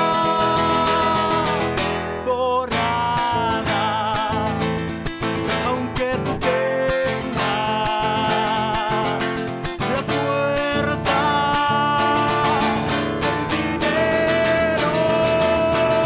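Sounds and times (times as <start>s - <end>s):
acoustic guitar music: 0.0s - 16.0s.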